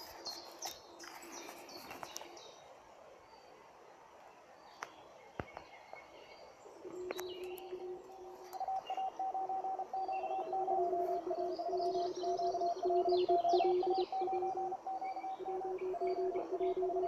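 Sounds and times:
faint bird chirps: 0:00.0 - 0:17.0
morse code beeps: 0:06.9 - 0:17.0.

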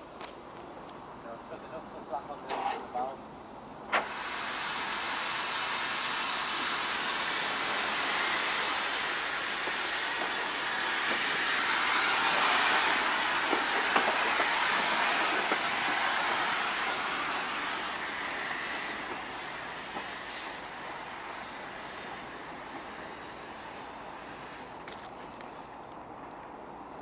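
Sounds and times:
steam hissing loudly: 0:03.8 - 0:24.8.

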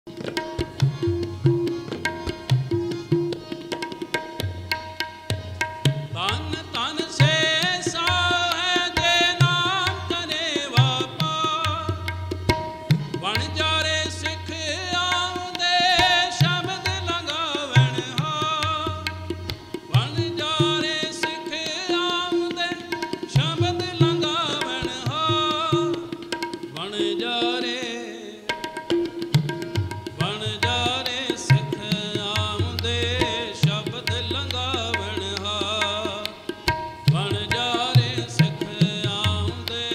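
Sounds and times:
tabla drumming: 0:00.1 - 0:39.9.

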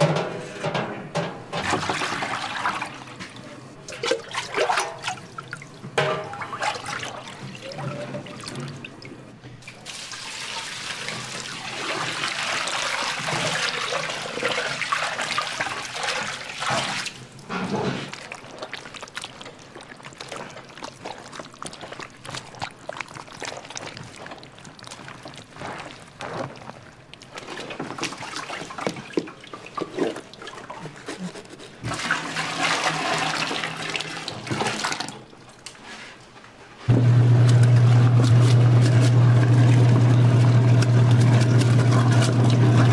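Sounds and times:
wet squelching: 0:17.9 - 0:35.2, 0:37.4 - 0:42.9
paste pouring and splashing: 0:18.1 - 0:35.0.

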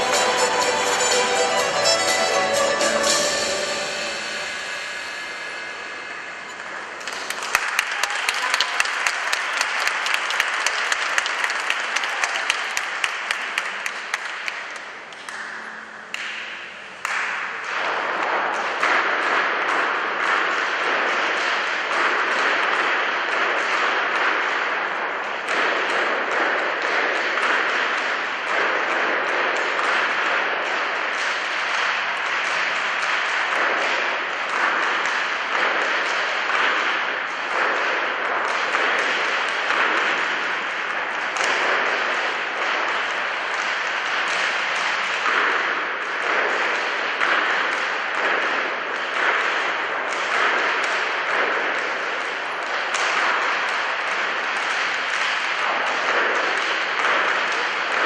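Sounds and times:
audience applauding: 0:00.0 - 0:05.9, 0:06.8 - 0:15.6.

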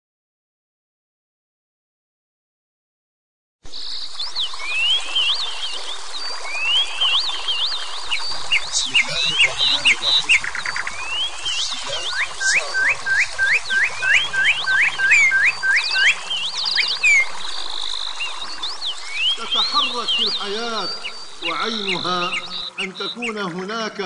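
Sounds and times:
bird sharp rising whistle: 0:03.7 - 0:23.4
birds chirping and whistling: 0:03.7 - 0:24.0.

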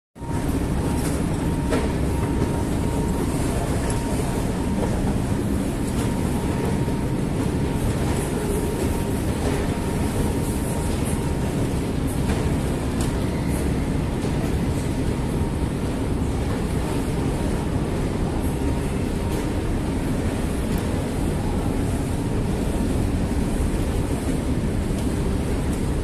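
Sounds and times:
faint steady whine: 0:00.2 - 0:26.0.

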